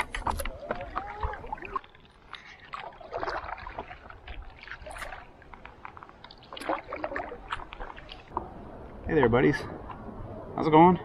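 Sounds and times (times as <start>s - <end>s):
water lapping against paddle board: 0.0s - 8.6s.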